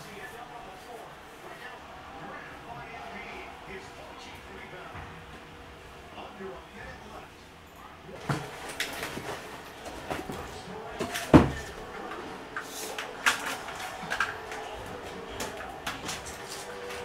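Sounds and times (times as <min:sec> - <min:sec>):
household items knocking and rattling: 0:08.2 - 0:11.9.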